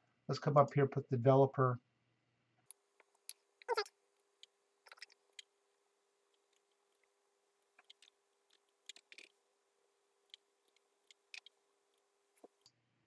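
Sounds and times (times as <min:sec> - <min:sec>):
mouse and keyboard clicks: 0:04.9 - 0:05.5, 0:07.6 - 0:09.4, 0:10.3 - 0:11.6, 0:12.4 - 0:12.7.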